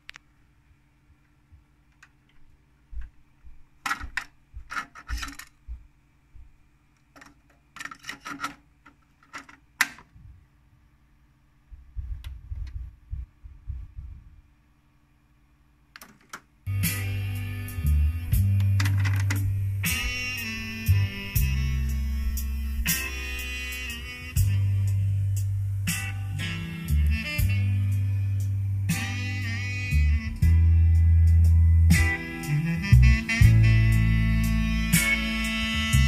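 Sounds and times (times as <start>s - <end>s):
faint steady hum: 0.0s - 36.0s
cassette plastic clicks and rattles: 7.0s - 10.1s, 16.0s - 16.5s
low bumps: 11.8s - 14.4s.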